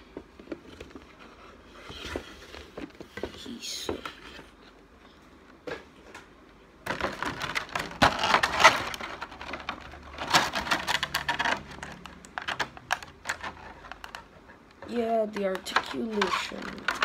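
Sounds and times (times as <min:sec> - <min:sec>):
plastic figure clicking and rattling: 0:06.9 - 0:17.0.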